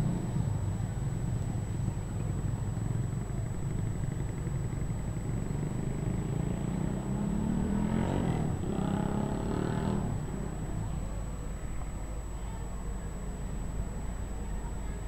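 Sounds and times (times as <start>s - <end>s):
low rumble of town traffic: 0.0s - 15.0s
passing vehicle engine: 5.4s - 10.8s.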